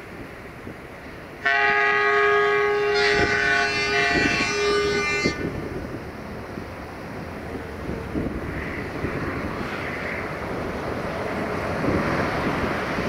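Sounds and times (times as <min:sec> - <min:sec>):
locomotive air horn: 0:01.4 - 0:05.6.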